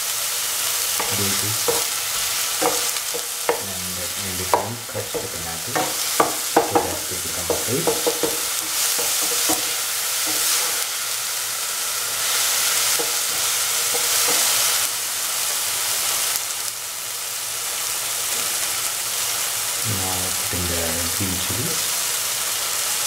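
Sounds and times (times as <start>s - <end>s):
vegetables sizzling in oil: 0.0s - 23.0s
spatula tapping pan: 0.9s - 10.9s, 12.3s - 14.9s.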